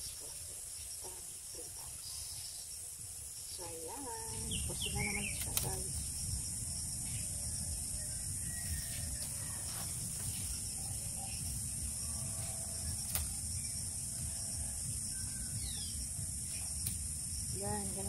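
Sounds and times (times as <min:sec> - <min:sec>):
bamboo strips creaking and clicking: 0:12.4 - 0:13.4.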